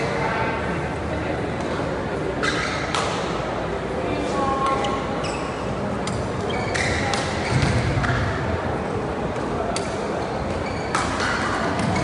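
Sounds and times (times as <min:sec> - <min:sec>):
murmur of voices: 0:00.0 - 0:12.0
court shoes squeaking: 0:01.6 - 0:03.4, 0:04.5 - 0:08.5, 0:09.2 - 0:12.0
rackets hitting shuttlecock: 0:02.4 - 0:03.4, 0:10.9 - 0:12.0.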